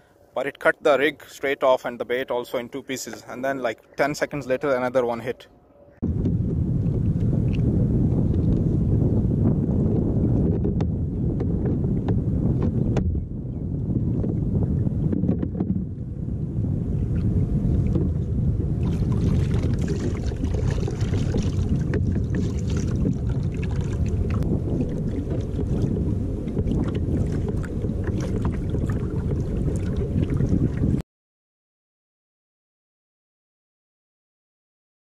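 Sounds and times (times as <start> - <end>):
wind buffeting microphone: 6.0 - 31.0
water sounds: 17.0 - 31.0.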